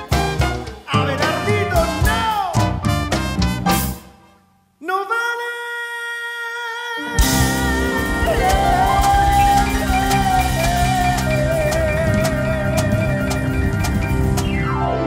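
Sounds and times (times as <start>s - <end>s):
drum kit crashing: 0.0s - 4.2s, 7.2s - 14.8s
live band music: 0.0s - 4.4s, 7.0s - 15.0s
man singing: 0.8s - 2.9s, 4.8s - 13.8s.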